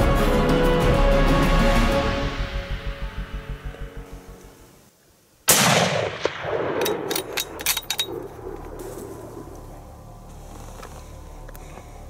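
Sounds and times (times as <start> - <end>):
rifle shot echoing: 5.5 - 9.4.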